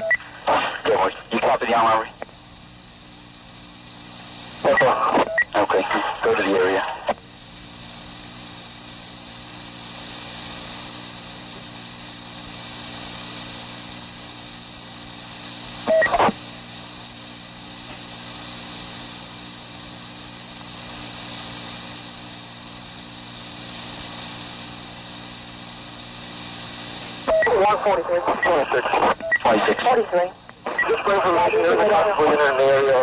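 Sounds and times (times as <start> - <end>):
radio tape hiss and hum: 0.0 - 33.0
short loud radio burst: 0.2 - 2.1, 27.3 - 33.0.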